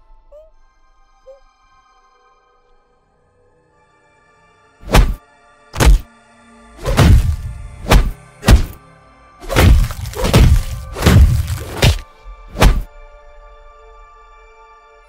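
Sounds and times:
cleaver chopping heavy thuds: 4.8 - 5.2, 5.8 - 6.1, 6.8 - 8.8, 9.4 - 12.9.

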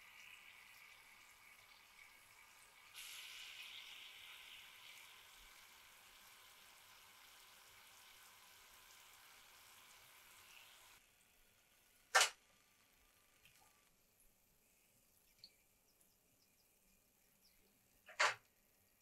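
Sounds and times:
frying oil sizzling: 0.0 - 12.5.

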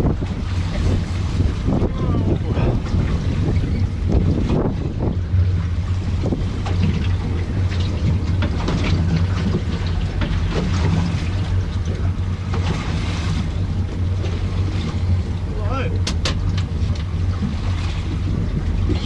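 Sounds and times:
boat engine humming: 0.0 - 19.0
water washing: 0.0 - 19.0
wind: 0.0 - 19.0.

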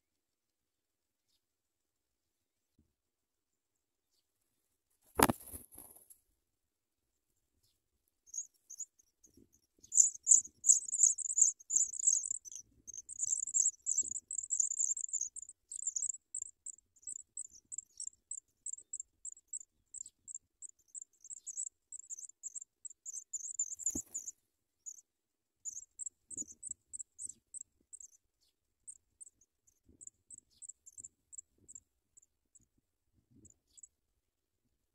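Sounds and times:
nestlings cheeping: 9.8 - 25.0, 25.7 - 28.2.

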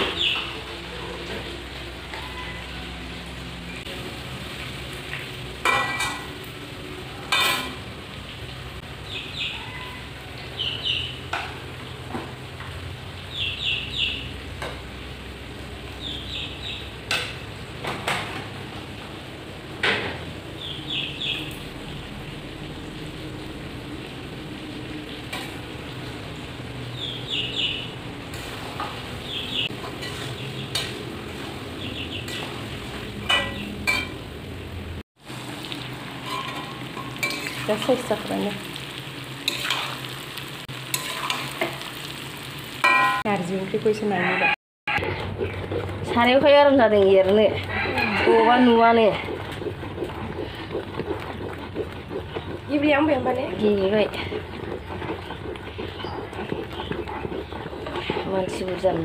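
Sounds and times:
meat sizzling in a wok: 1.5 - 17.8, 34.1 - 44.0
spatula scraping a pan: 29.7 - 31.5, 36.2 - 38.1, 39.4 - 40.2, 40.9 - 41.9, 44.9 - 59.0.

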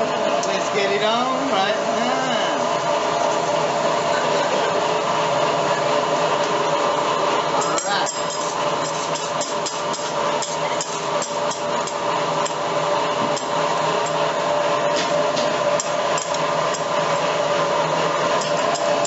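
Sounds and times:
restaurant noise hum: 0.0 - 19.0
metal spatulas clinking on griddle: 7.6 - 11.6.

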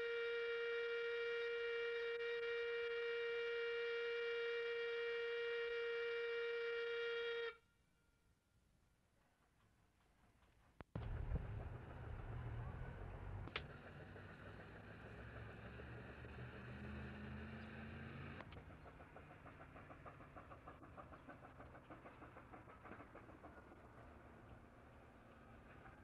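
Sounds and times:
machinery rumble and hum: 10.9 - 26.0.

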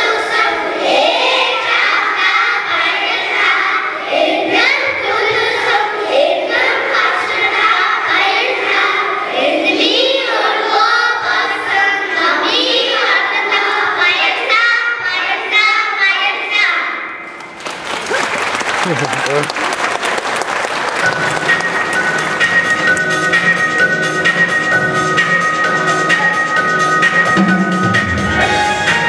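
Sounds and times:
children singing: 0.0 - 16.6.

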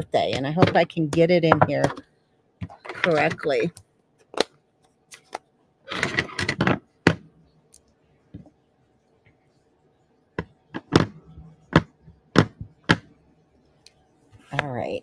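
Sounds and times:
rubber stamp tapping: 10.4 - 13.1.

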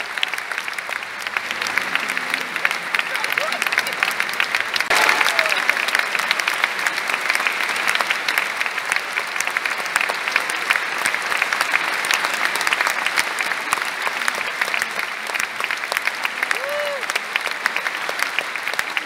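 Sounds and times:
audience applauding: 0.0 - 19.0.

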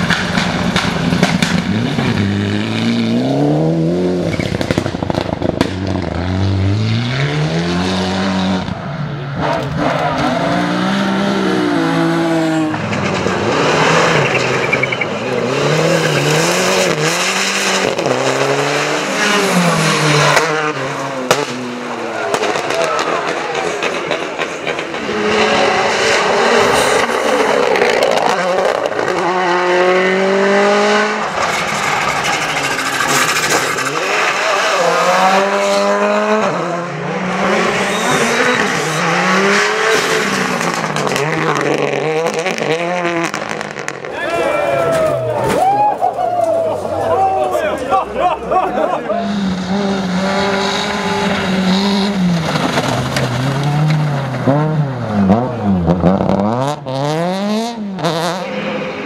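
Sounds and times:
rally cars passing revving: 0.0 - 59.0.

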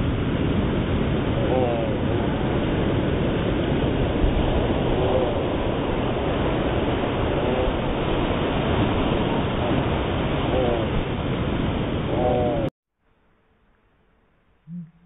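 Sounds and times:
steady rushing noise: 0.0 - 12.7
slowed bird calls: 12.1 - 12.7, 14.6 - 15.0.

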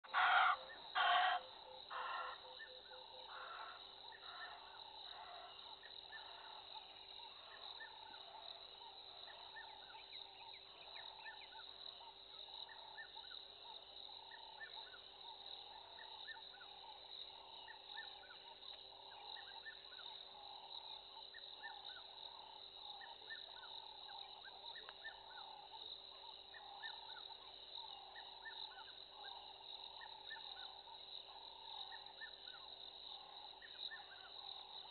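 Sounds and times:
loud animal call: 0.0 - 2.5.

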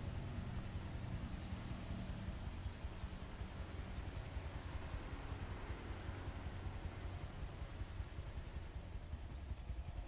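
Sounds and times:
steady outdoor hiss: 0.0 - 10.0.

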